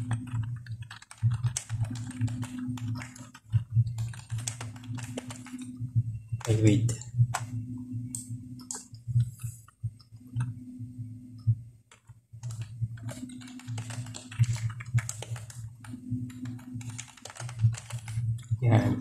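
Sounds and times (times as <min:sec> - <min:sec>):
computer keyboard typing: 0:00.0 - 0:05.8, 0:06.4 - 0:07.6, 0:11.9 - 0:19.0
low hum: 0:01.7 - 0:11.8.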